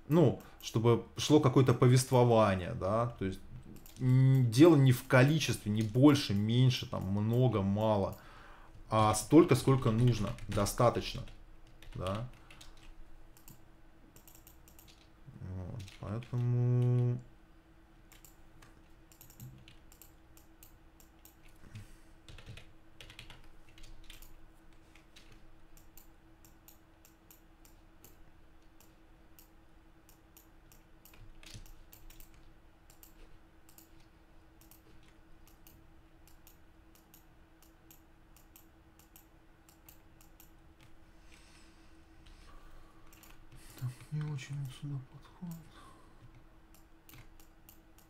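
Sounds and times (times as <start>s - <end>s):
steady low hum: 0.0s - 48.0s
keyboard and mouse clicking: 3.6s - 4.5s, 5.3s - 7.4s, 9.6s - 13.6s, 14.2s - 15.1s, 18.1s - 41.0s, 43.0s - 44.8s, 45.4s - 48.0s.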